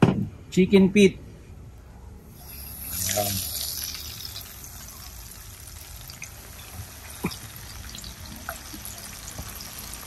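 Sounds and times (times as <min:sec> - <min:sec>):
food deep-frying in hot oil: 0:02.3 - 0:10.0.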